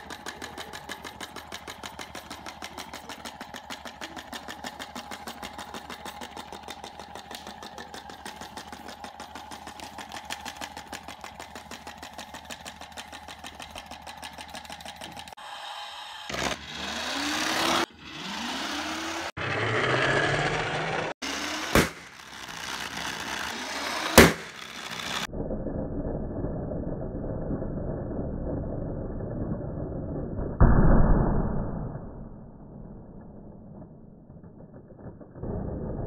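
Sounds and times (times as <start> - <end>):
sharp cracks: 0.0 - 15.4, 21.2 - 25.3
rising whirs: 0.0 - 36.0.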